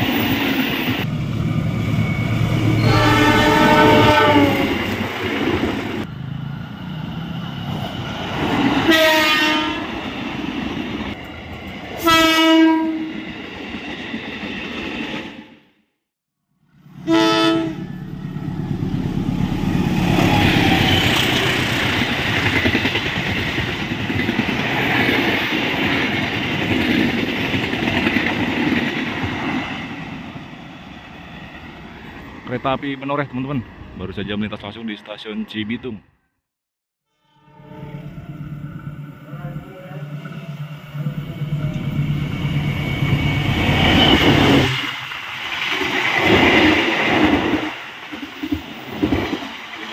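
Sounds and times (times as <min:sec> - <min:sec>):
train passing with rumble: 0:00.0 - 0:15.7, 0:16.7 - 0:35.7, 0:37.6 - 0:49.9
locomotive horn blasts: 0:02.8 - 0:04.8, 0:08.9 - 0:09.9, 0:12.0 - 0:13.1, 0:17.0 - 0:18.0, 0:37.1 - 0:38.3.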